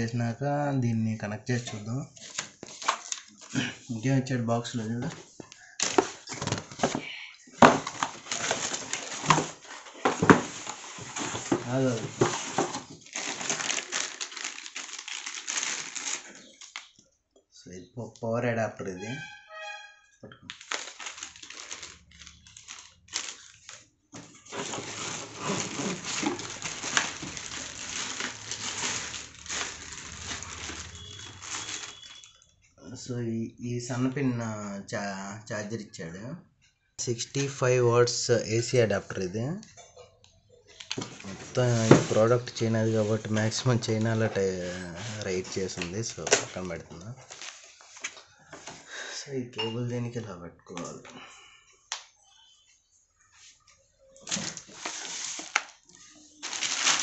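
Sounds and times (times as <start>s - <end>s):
packaging rustling and crinkling: 1.6s - 3.8s, 5.0s - 17.0s, 20.5s - 32.5s, 40.8s - 48.8s, 54.2s - 57.0s.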